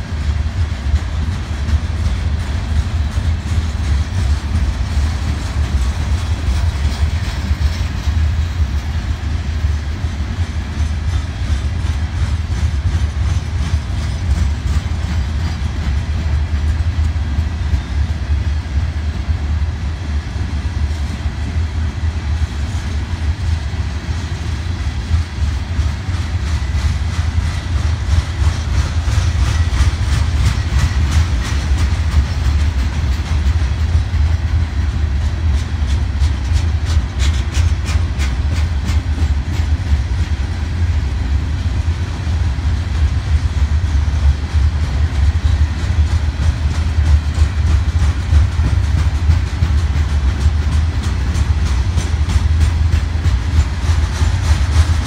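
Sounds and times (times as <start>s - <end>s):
heavy train rumble: 0.0s - 55.0s
wheels clicking over rails: 25.1s - 40.9s, 41.8s - 55.0s.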